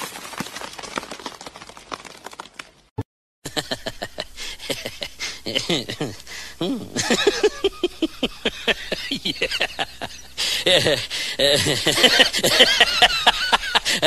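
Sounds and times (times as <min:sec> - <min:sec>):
person giggling: 0:03.5 - 0:14.0.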